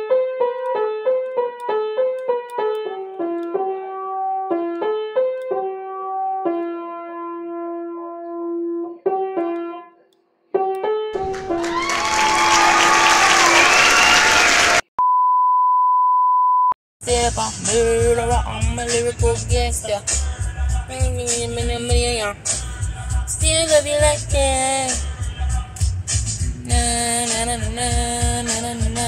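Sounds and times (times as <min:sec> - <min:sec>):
upright piano melody: 0:00.0 - 0:08.2.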